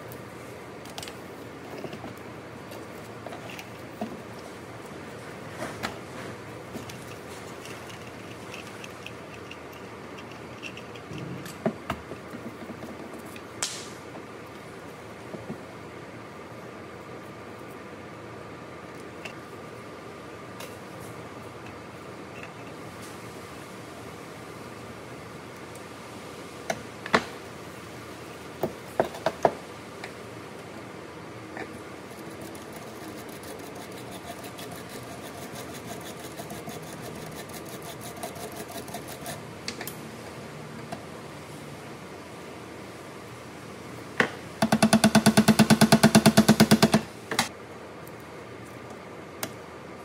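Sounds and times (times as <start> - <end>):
steady background hiss: 0.0 - 50.0
sharp metal knocks: 44.2 - 47.1.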